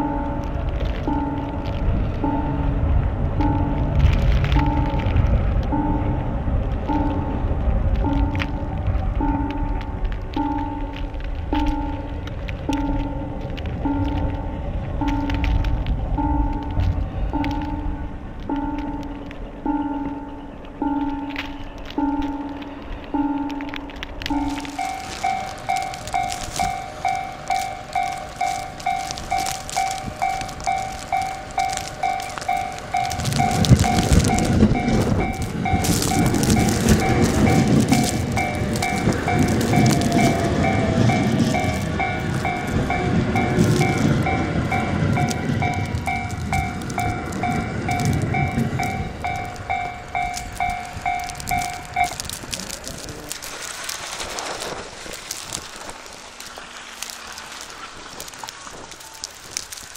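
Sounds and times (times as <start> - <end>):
level-crossing warning bell: 0.0 - 53.4
train rumble: 0.0 - 59.9.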